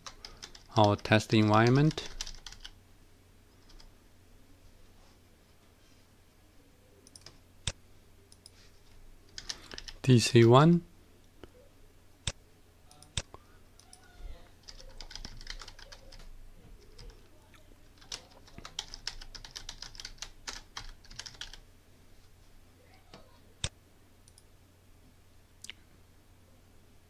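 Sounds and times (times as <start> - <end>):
computer keyboard typing: 0.0 - 2.8, 7.0 - 7.4, 9.3 - 10.0, 14.6 - 17.2, 17.9 - 21.6.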